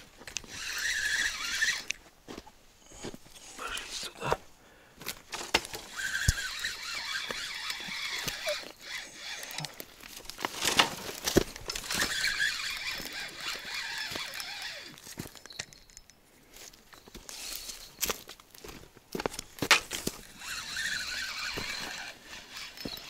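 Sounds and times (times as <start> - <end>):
fishing reel whirring: 0.4 - 1.9, 5.8 - 9.8, 11.6 - 16.1, 20.2 - 23.0
handling knocks and clicks: 5.0 - 6.5, 7.2 - 16.2.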